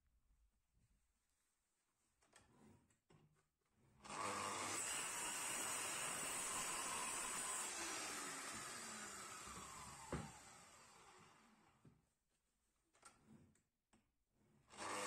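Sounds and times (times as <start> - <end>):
miter saw cutting wood: 4.0 - 11.5, 14.7 - 15.0.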